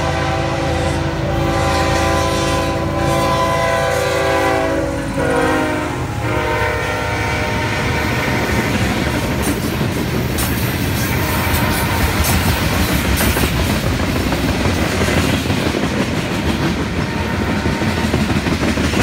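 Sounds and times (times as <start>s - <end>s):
locomotive air horn: 0.0s - 9.8s, 11.0s - 12.7s, 17.0s - 18.3s
train wheels clacking over rails: 5.1s - 19.0s.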